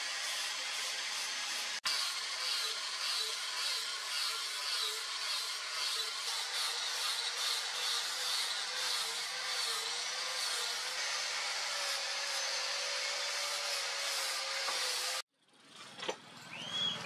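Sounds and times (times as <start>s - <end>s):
angle grinder motor whine: 0.0s - 15.2s.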